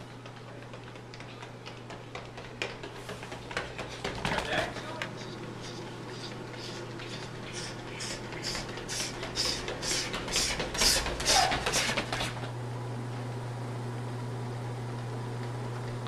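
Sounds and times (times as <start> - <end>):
running footsteps on tiled floor: 0.0 - 12.6
steady low hum: 0.0 - 16.0.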